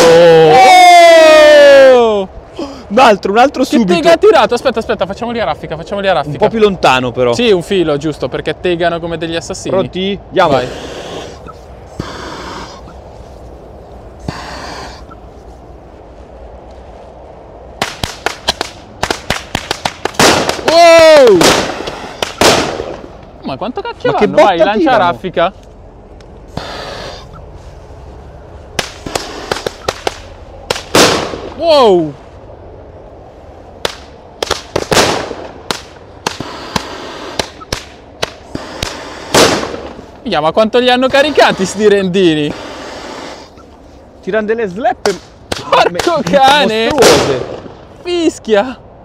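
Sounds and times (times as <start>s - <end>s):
firecrackers banging: 17.8s - 23.3s, 28.7s - 31.6s, 33.8s - 40.1s, 45.0s - 47.9s.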